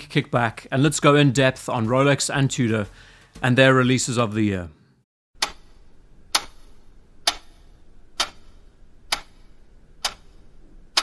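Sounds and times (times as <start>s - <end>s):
clock ticking: 5.4s - 11.0s.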